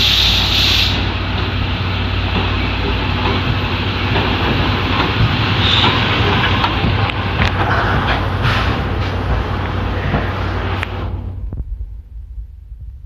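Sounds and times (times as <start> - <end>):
steam hiss: 0.0 - 1.2, 5.3 - 6.2
train wheels rumbling on rails: 0.0 - 13.0.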